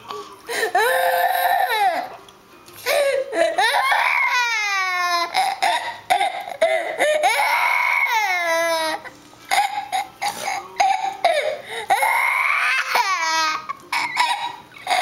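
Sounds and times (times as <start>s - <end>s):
toddler fake crying: 3.3s - 10.1s, 11.4s - 15.0s.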